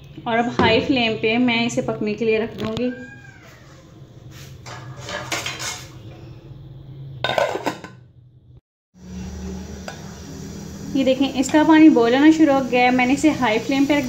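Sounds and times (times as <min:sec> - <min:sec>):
metal pot and lid clattering: 0:04.6 - 0:05.9, 0:07.2 - 0:08.0
pot boiling on stove: 0:09.0 - 0:14.0.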